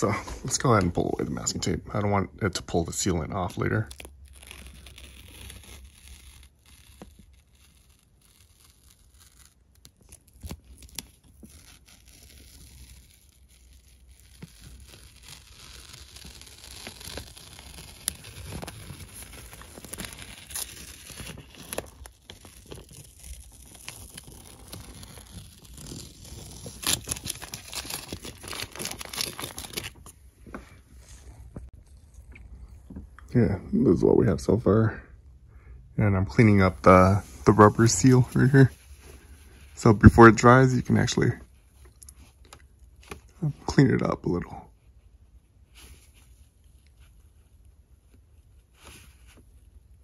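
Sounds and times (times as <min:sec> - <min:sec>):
masking tape being peeled: 0:03.1 - 0:30.2.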